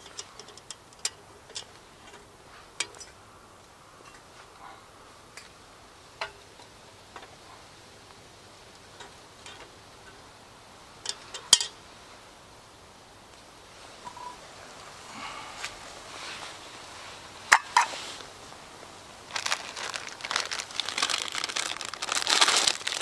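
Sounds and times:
camp cookware clicking and tapping: 0.0s - 3.2s, 5.3s - 7.4s, 8.0s - 10.4s, 11.0s - 11.8s, 17.5s - 17.9s
faint outdoor background hiss: 0.0s - 23.0s.

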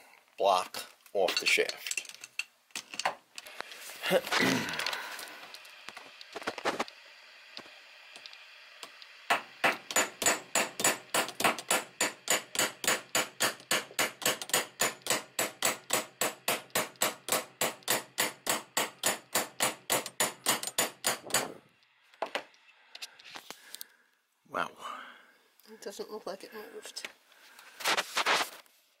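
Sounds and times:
hammer tapping on metal wrench: 9.3s - 21.5s.

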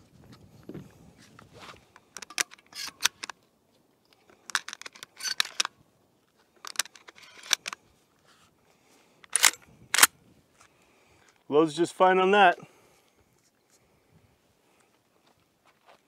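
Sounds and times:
shotgun shells loading clicks: 1.9s - 3.5s, 4.1s - 5.8s, 6.5s - 7.8s, 9.2s - 10.1s.

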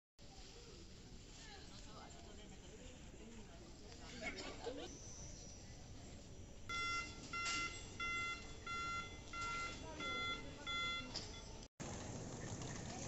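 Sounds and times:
short electronic beeps: 4.9s - 11.7s.

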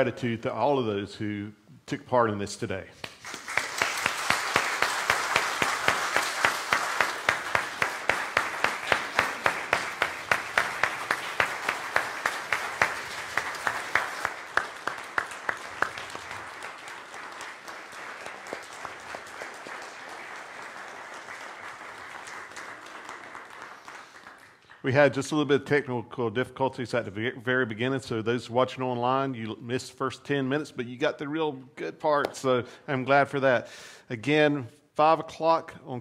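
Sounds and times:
congregation applauding: 3.0s - 24.9s.

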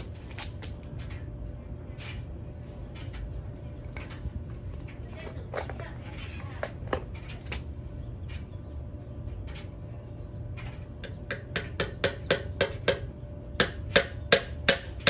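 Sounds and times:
hammer striking nail into wood: 11.1s - 15.0s.

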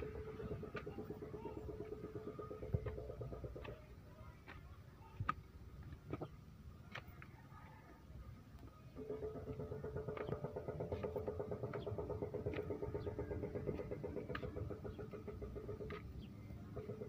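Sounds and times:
small engine running: 0.0s - 4.0s, 9.0s - 17.0s.

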